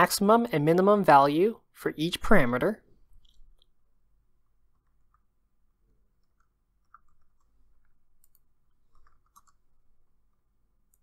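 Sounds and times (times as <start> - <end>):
keyboard and mouse clicks: 6.0 - 11.0.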